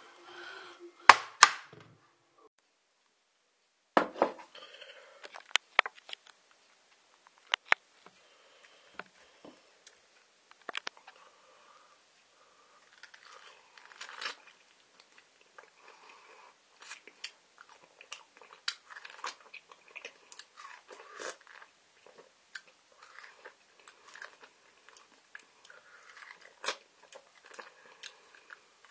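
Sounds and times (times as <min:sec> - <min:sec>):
person chewing food: 0:12.8 - 0:28.9.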